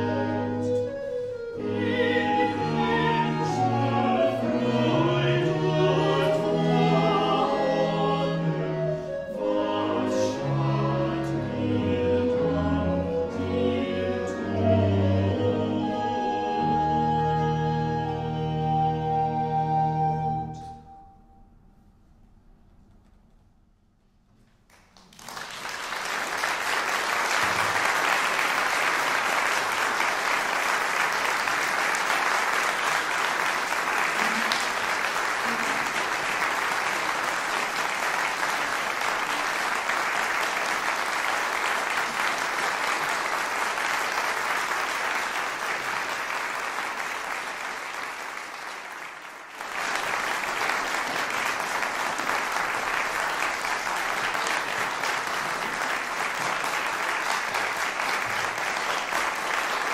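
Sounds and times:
audience applauding: 0:24.7 - 0:59.9.

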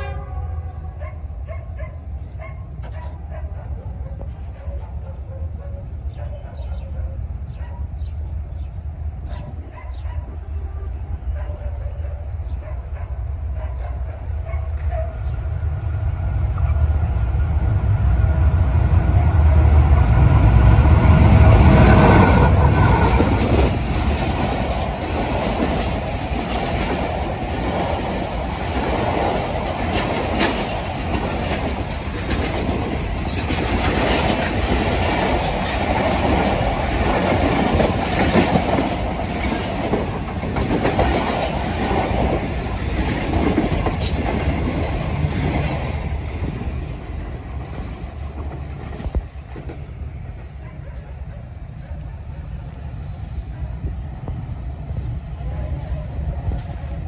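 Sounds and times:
train coaches rushing by: 0:00.0 - 0:57.0
wheels clacking over rail joints: 0:16.6 - 0:50.6.

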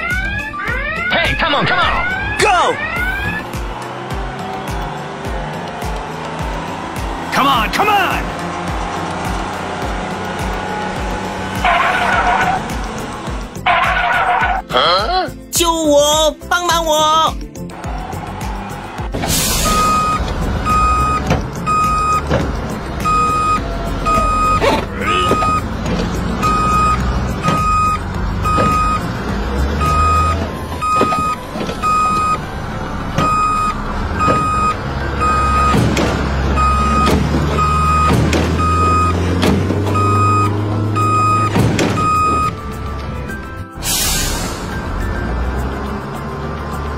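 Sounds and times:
truck reversing alarm beeping: 0:00.0 - 0:08.5, 0:19.3 - 0:45.5.

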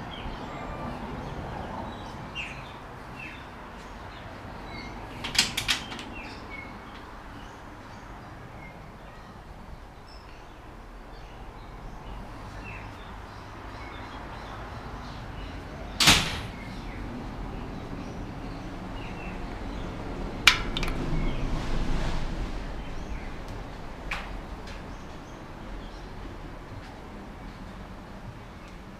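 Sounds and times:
birds chirping: 0:00.0 - 0:21.5
screen door banging shut: 0:05.2 - 0:06.2, 0:16.0 - 0:16.8, 0:20.5 - 0:21.5.

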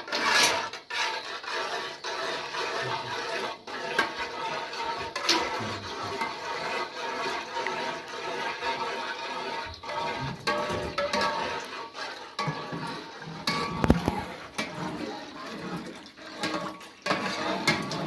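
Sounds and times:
liquid sloshing in a pot: 0:00.0 - 0:18.0
ladle clicking on metal pot: 0:12.4 - 0:15.0, 0:15.6 - 0:18.0.

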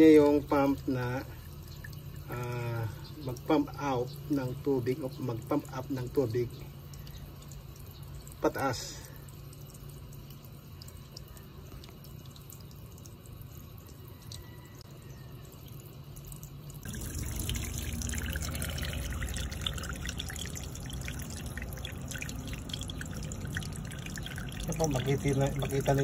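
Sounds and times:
water bubbling and splashing: 0:16.8 - 0:26.0.

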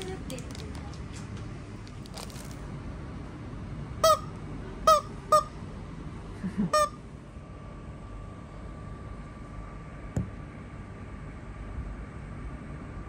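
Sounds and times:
bird toy squeaking: 0:04.0 - 0:04.3, 0:04.9 - 0:05.5.

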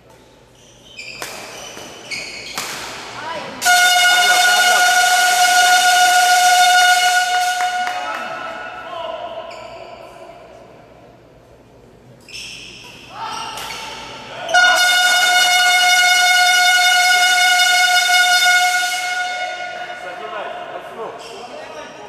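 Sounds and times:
loud horn-like tone: 0:03.6 - 0:08.8, 0:14.5 - 0:20.3.

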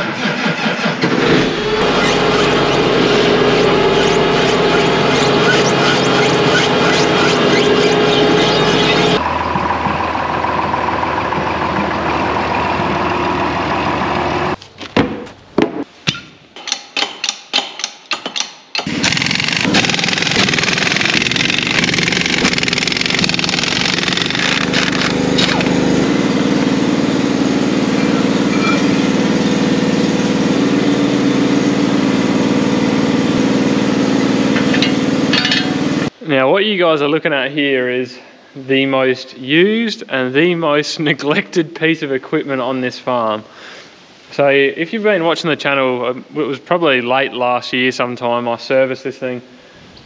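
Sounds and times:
loud mechanical noise: 0:00.0 - 0:14.6, 0:18.8 - 0:36.2
air impact wrench rattling: 0:16.6 - 0:26.0.

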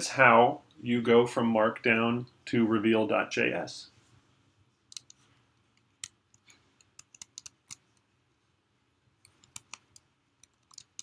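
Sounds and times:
computer keys clicking: 0:04.9 - 0:05.2, 0:05.8 - 0:08.0, 0:09.2 - 0:11.0.

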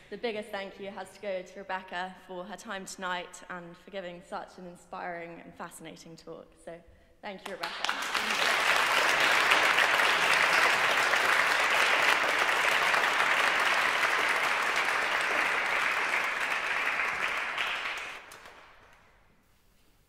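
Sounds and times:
audience applauding: 0:07.5 - 0:19.2.

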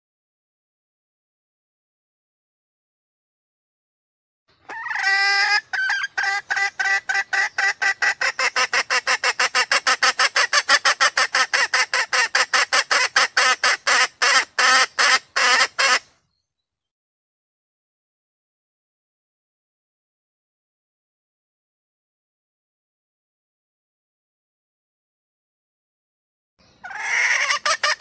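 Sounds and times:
hen junglefowl calling: 0:04.6 - 0:16.1, 0:26.8 - 0:28.0.

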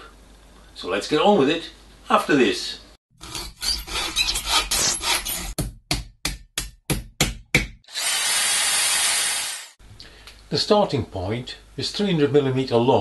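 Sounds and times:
hand tool rasping on wood: 0:03.2 - 0:05.5.

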